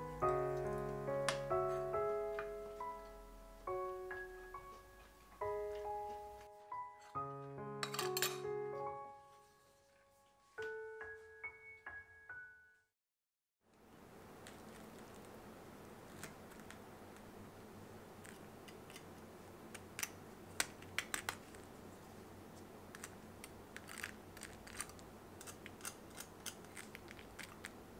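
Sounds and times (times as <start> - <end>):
faint room hum: 0.0 - 10.8, 13.6 - 27.9
crispy crust crackling: 14.2 - 27.9.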